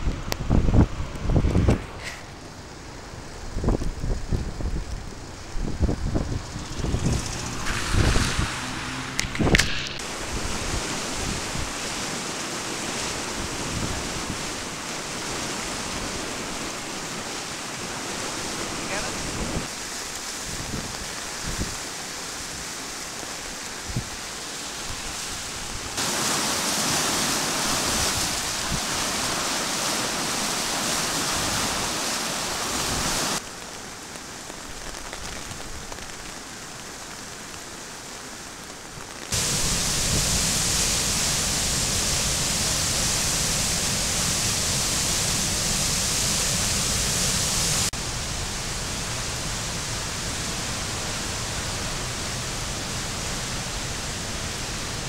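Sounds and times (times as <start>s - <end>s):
flood water rushing over rapids: 0.0s - 55.0s.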